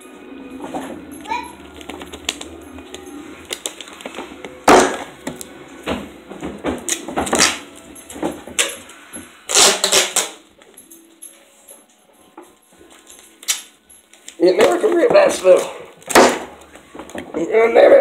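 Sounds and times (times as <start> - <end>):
hands handling tape: 1.6 - 5.5, 8.6 - 10.8, 12.9 - 17.3
duct tape pulled off roll: 9.5 - 10.4.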